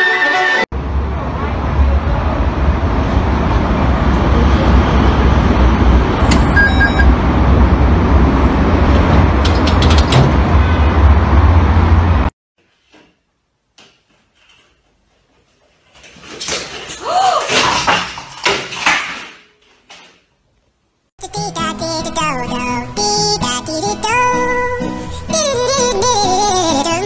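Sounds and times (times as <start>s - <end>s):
electronic beep: 6.3s - 7.2s.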